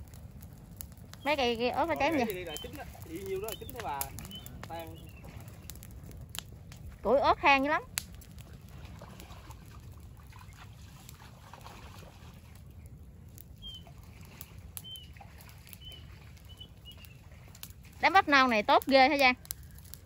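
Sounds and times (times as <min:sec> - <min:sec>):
small fire crackling and popping: 0:00.0 - 0:20.0
bird chirps: 0:02.0 - 0:05.7, 0:13.6 - 0:13.9, 0:14.8 - 0:15.2, 0:15.8 - 0:17.2.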